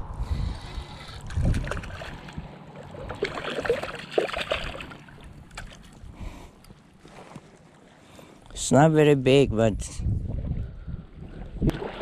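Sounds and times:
wind buffet on microphone: 0.0 - 2.5, 9.2 - 12.0
water splashing and lapping: 0.4 - 8.7, 10.4 - 12.0.

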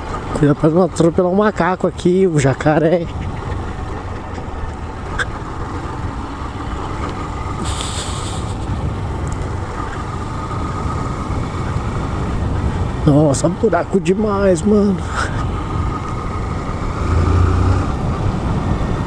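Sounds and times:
motorcycle engine running: 3.1 - 13.4
burst of hiss: 7.6 - 8.6
wind noise on microphone: 7.6 - 9.6.

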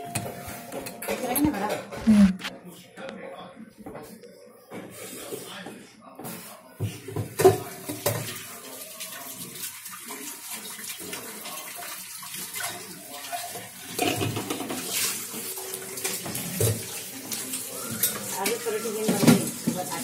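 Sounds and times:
dishes knocking and clinking: 0.0 - 2.5, 6.2 - 8.4, 13.4 - 15.0, 17.9 - 20.0
tap running into sink: 13.9 - 15.1, 16.0 - 17.0, 17.9 - 20.0.

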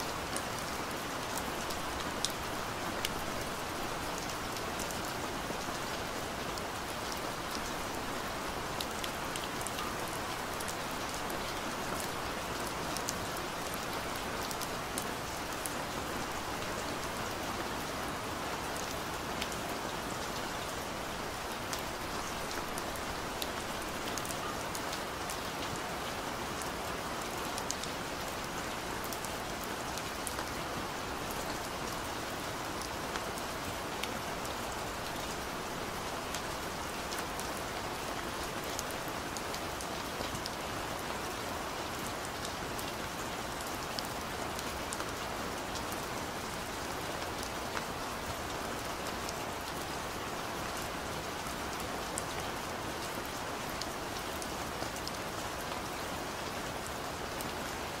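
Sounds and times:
rain hiss: 0.0 - 58.0.

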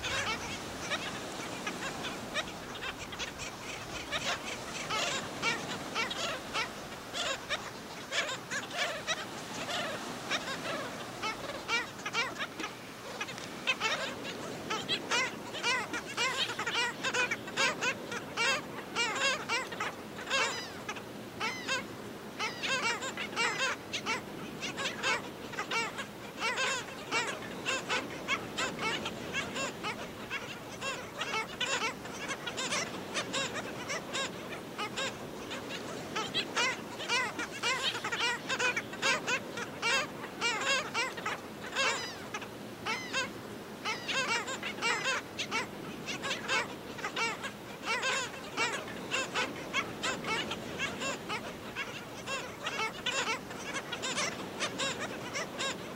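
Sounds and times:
colony of birds calling: 0.0 - 55.9.

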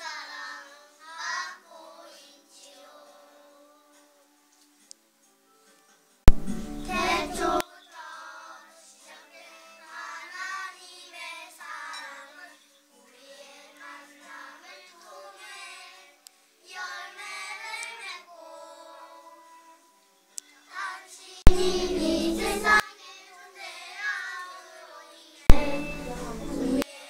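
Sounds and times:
children singing together: 0.0 - 4.2, 6.4 - 19.8, 20.7 - 27.0.

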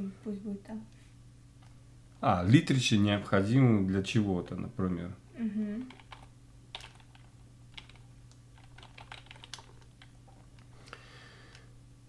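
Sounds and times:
keyboard typing: 5.9 - 10.2.

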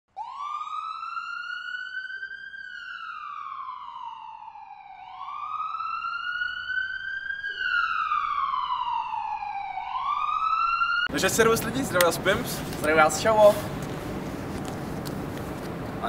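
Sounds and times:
emergency siren wailing: 0.1 - 11.6.

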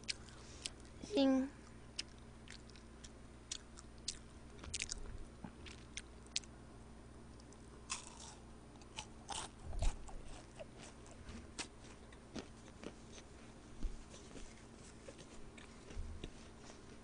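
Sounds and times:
chewing chocolate crunches: 2.0 - 6.5, 7.4 - 13.4.

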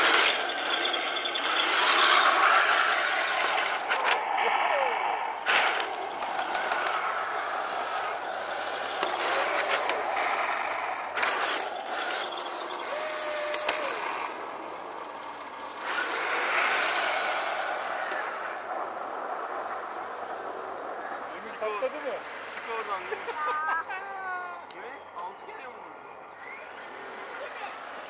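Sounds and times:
sharp clicks: 0.0 - 4.6, 5.4 - 14.2, 18.0 - 18.5
model tank motors whirring: 0.0 - 23.4.

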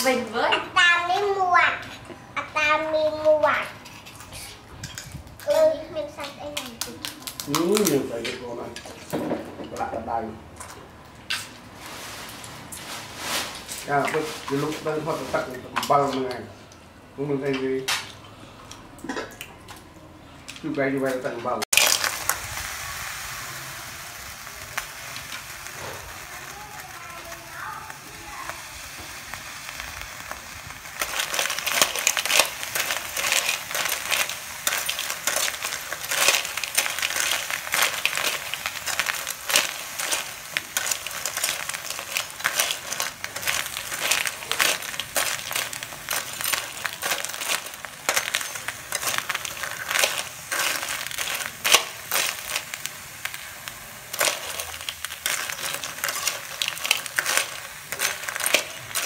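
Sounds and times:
frying sizzle: 0.0 - 59.0
crab shells clattering in metal wok: 29.8 - 59.0.

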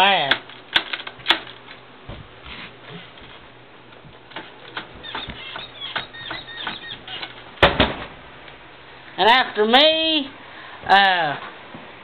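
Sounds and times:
short squeaks: 5.0 - 7.4.

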